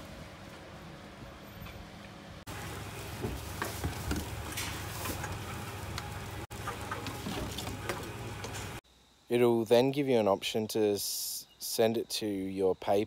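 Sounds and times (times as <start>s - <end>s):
vending machine humming: 0.0s - 8.8s.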